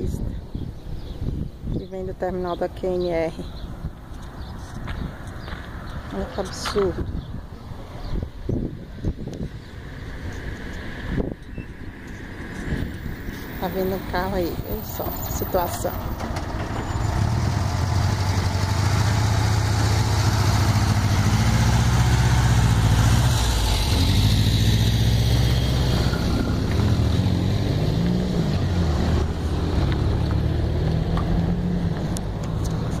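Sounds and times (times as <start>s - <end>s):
road and traffic noise: 0.0s - 33.0s
vehicle engine drone: 9.3s - 33.0s.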